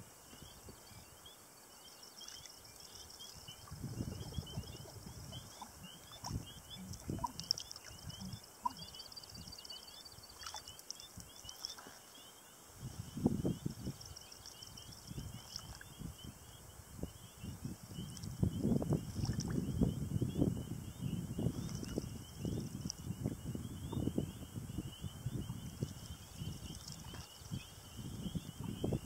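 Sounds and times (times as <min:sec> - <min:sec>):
water sloshing along canoe hull: 0:02.2 - 0:09.6, 0:10.2 - 0:12.1, 0:19.0 - 0:19.7.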